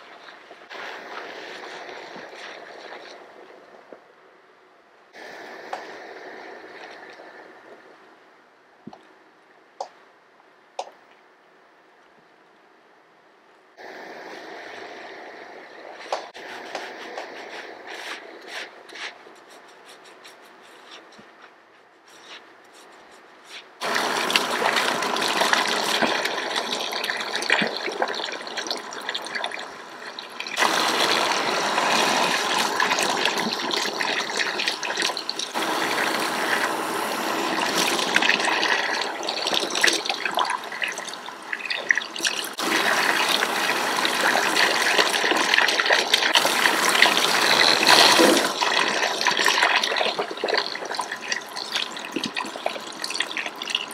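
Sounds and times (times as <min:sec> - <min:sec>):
water running from shower sprayer: 0:23.8 - 0:53.8.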